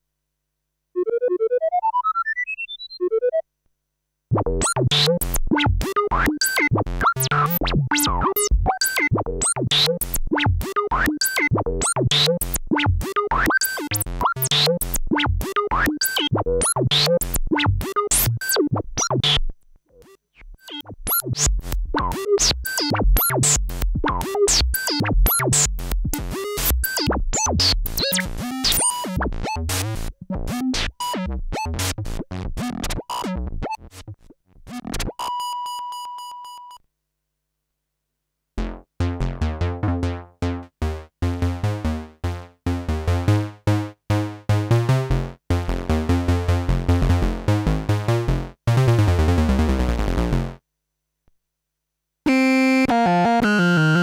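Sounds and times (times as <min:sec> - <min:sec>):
synthesizer sequenced line: 0:52.3 - 0:54.0.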